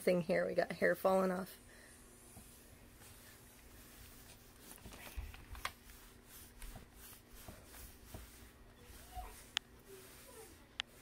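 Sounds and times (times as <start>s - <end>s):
grooming glove rubbing dog's coat: 2.2s - 11.0s.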